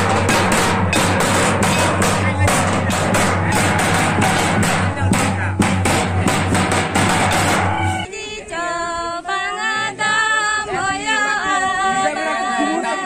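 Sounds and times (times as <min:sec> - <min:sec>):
barrel drums beaten with sticks: 0:00.0 - 0:08.1
women singing unaccompanied: 0:08.0 - 0:13.0.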